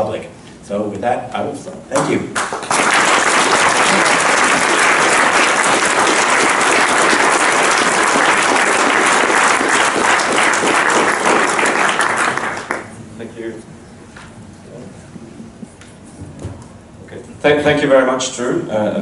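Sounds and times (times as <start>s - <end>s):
audience applauding: 2.0s - 13.0s.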